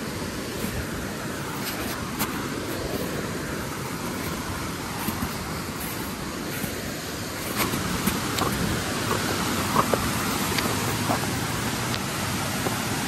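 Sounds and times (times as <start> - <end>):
mountain stream rushing: 0.0 - 13.0.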